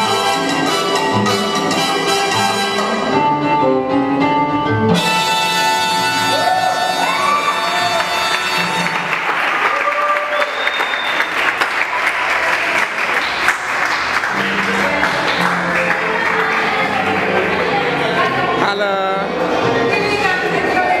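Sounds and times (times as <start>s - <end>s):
latin dance music: 0.0s - 9.8s, 13.0s - 21.0s
audience clapping: 7.1s - 18.4s.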